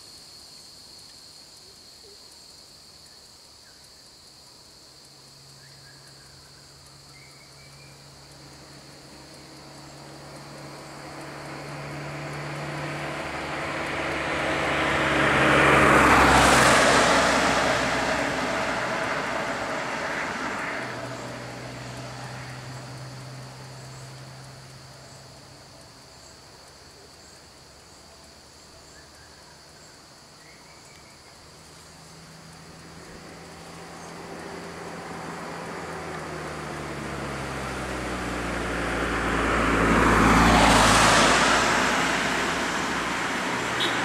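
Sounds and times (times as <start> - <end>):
low engine hum: 5.4 - 44.0
motor vehicle passing: 7.0 - 26.1, 31.1 - 44.0.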